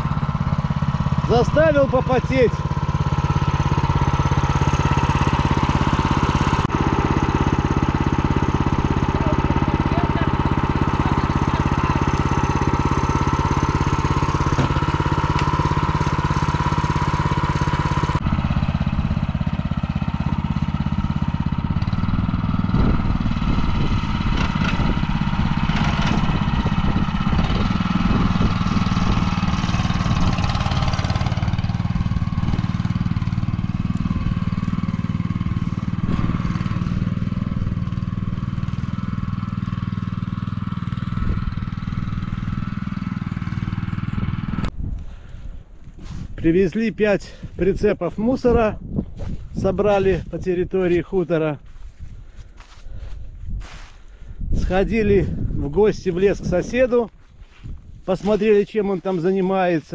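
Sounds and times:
small single-cylinder engine running: 0.0 - 45.5.

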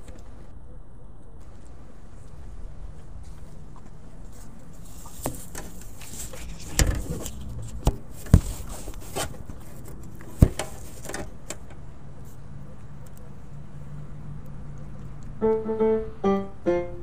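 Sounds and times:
paper rustling: 4.4 - 11.3.

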